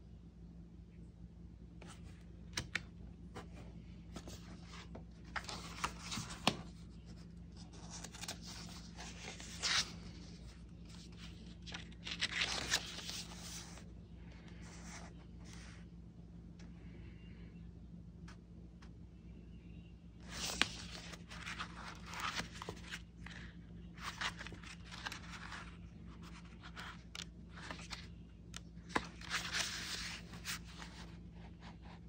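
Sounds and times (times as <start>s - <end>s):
steady low hum: 0.0s - 32.0s
paper rustling: 3.4s - 13.8s, 20.2s - 32.0s.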